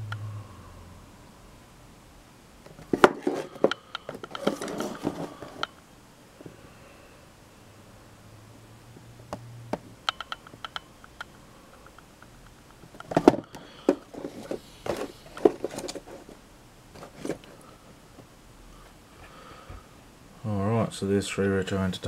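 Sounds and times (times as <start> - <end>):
plastic packaging knocks and crinkles: 2.8 - 5.6.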